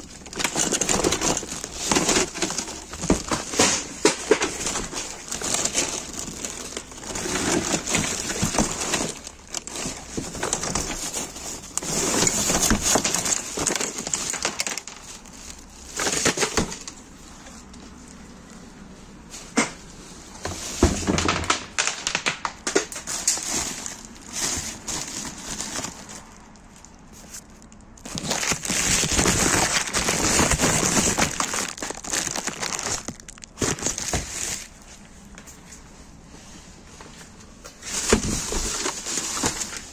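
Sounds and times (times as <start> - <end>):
plastic bags rustling: 0.0 - 39.9.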